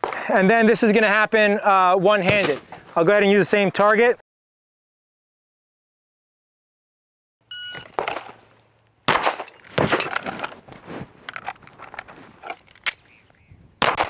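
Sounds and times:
pistol shot: 0:02.3 - 0:02.8, 0:09.1 - 0:10.1, 0:13.8 - 0:14.0
shot timer beep: 0:07.5 - 0:07.9
pistol reload clicks and clatter: 0:09.1 - 0:10.6, 0:11.3 - 0:13.1.

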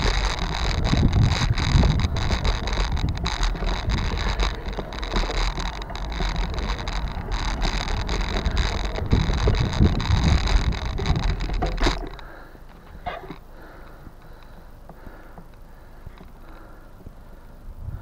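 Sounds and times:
low rumble: 0:00.0 - 0:13.0
wind buffeting microphone: 0:00.0 - 0:13.1, 0:17.7 - 0:18.0
small knocks and rattles: 0:00.0 - 0:17.2.

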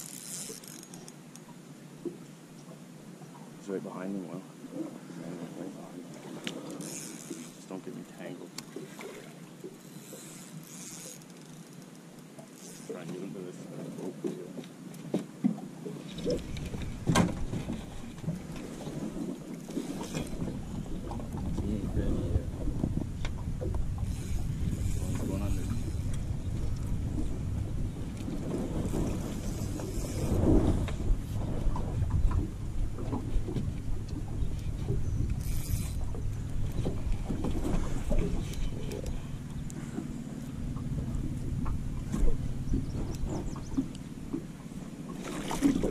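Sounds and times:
water lapping at hull: 0:00.0 - 0:45.9
wind rumbling on microphone: 0:16.1 - 0:45.9.

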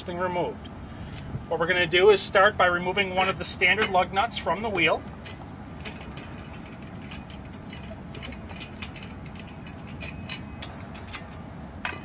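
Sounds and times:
hand ratchet clicking: 0:05.9 - 0:12.0.

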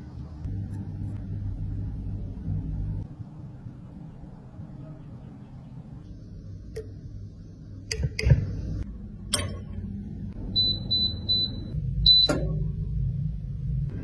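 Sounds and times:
low steady hum: 0:00.0 - 0:14.0
appliance control panel beeps: 0:10.5 - 0:12.7.

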